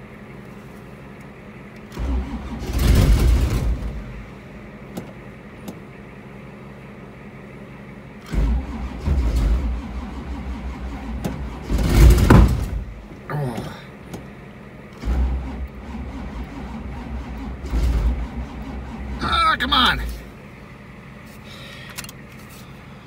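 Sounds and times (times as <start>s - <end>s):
engine cranking on starter: 1.8s - 4.3s, 8.2s - 13.0s, 14.9s - 20.2s.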